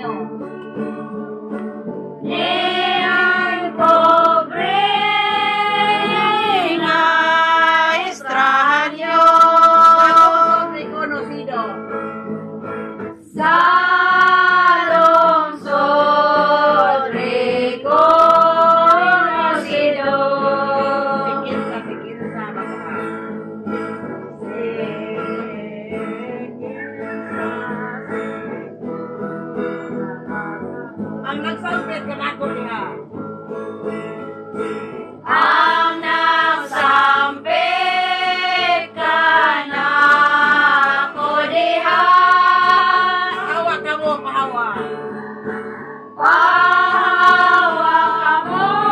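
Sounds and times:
acoustic guitar accompaniment: 0.0 - 48.9
women singing together: 0.9 - 11.3, 13.3 - 22.4, 24.4 - 28.5, 35.2 - 43.9, 46.2 - 48.9.

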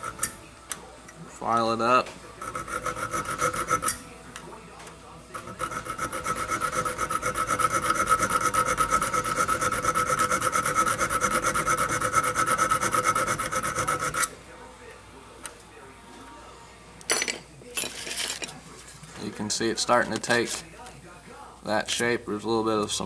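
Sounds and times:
hand file rasping on steel: 2.4 - 4.0, 5.3 - 14.3.

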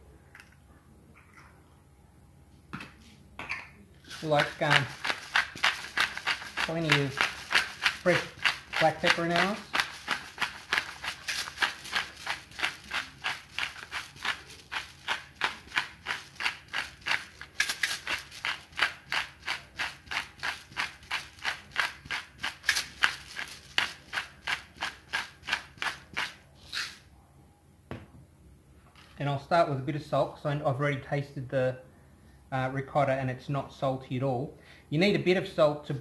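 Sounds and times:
pepper grinder grinding: 4.1 - 27.0.

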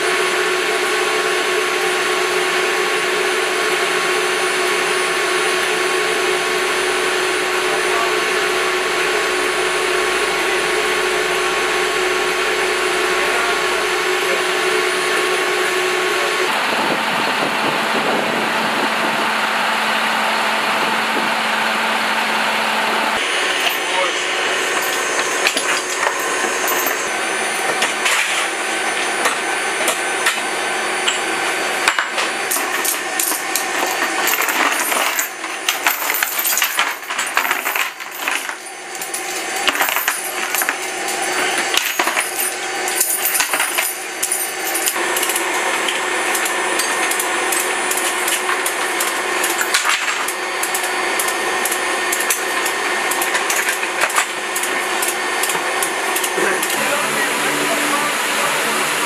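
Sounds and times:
steady mechanical hum: 0.0 - 59.0
metal chains clinking and rattling: 23.6 - 28.6, 32.5 - 54.7.

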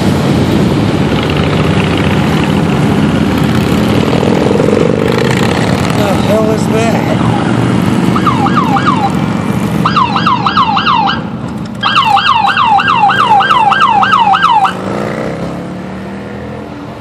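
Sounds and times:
passing vehicle engines hum: 0.0 - 17.0
police siren yelping: 7.1 - 9.2, 9.8 - 14.8.

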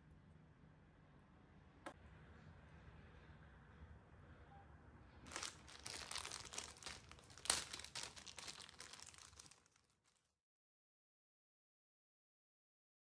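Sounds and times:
plastic packet crinkling: 5.3 - 10.3.

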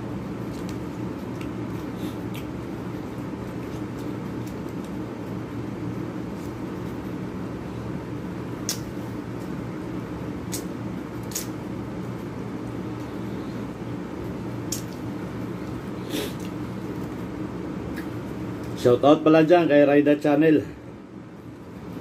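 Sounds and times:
room ventilation hum: 0.0 - 22.0.

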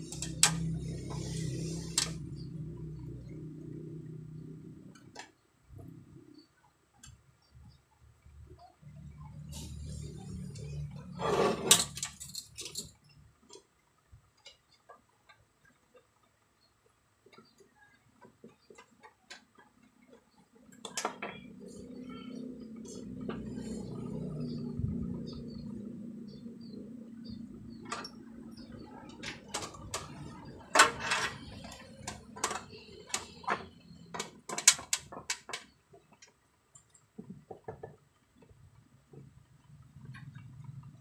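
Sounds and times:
metallic clatter of small parts: 11.5 - 13.0, 29.1 - 35.7
low rumble: 21.6 - 27.8.

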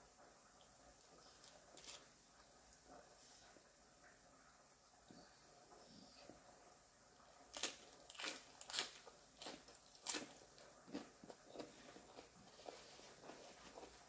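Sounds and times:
crunching and chewing lettuce: 1.2 - 2.5, 7.4 - 14.0.

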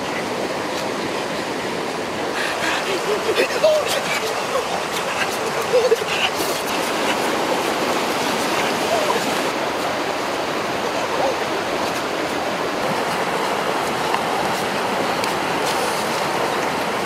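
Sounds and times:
stream rushing over rocks: 0.0 - 17.0.

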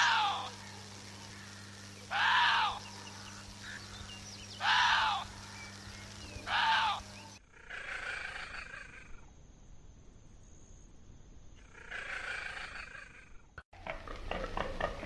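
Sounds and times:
deer call: 0.0 - 4.0, 4.6 - 9.2.

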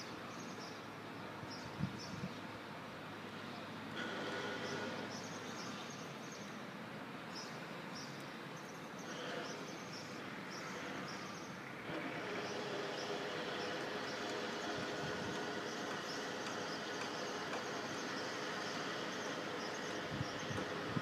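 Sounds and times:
small birds chirping: 4.4 - 6.6, 7.3 - 21.0.

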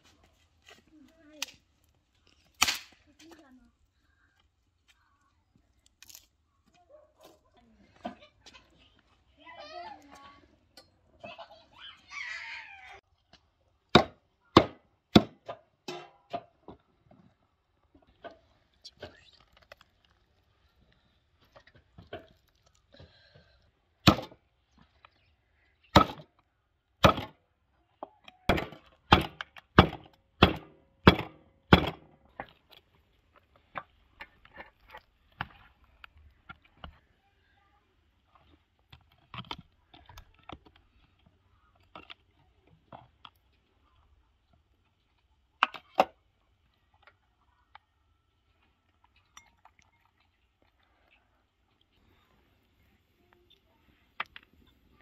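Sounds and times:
cleaver chopping meat and bone: 14.0 - 15.5, 24.0 - 24.4, 26.0 - 26.2, 27.0 - 27.3, 28.5 - 32.1.

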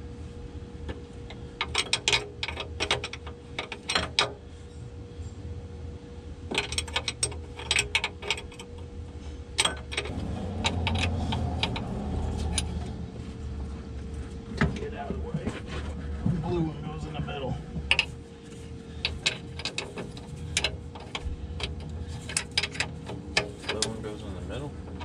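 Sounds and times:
low rumble: 10.1 - 16.4.

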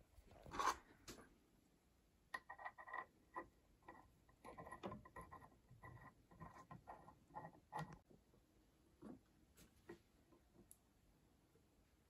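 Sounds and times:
faint clicks and scrapes: 0.0 - 1.3, 2.3 - 8.2.

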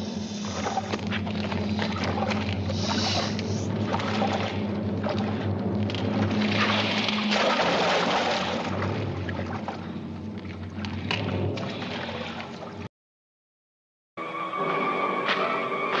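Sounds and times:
water splashing and churning: 0.0 - 12.9
music: 14.2 - 16.0.

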